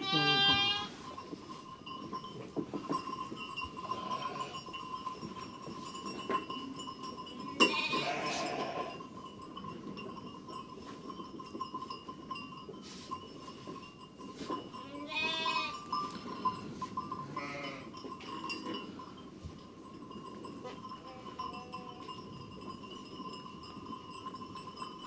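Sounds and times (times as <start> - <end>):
sheep bleating: 0.0 - 0.9, 3.9 - 4.6, 7.6 - 8.9, 14.9 - 15.8, 17.4 - 17.9.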